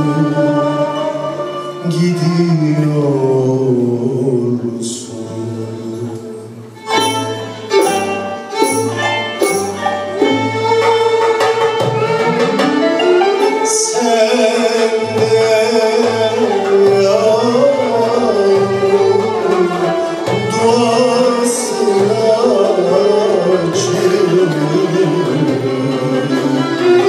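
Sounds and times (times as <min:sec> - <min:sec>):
man singing: 0:00.0 - 0:06.7, 0:13.3 - 0:27.0
ensemble with violins: 0:00.0 - 0:27.0.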